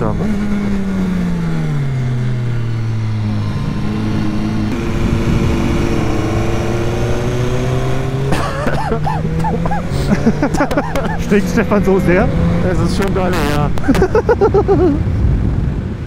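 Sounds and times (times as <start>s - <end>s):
motorcycle engine running: 0.0s - 14.0s
wind rush on microphone: 4.6s - 7.6s, 12.3s - 16.0s.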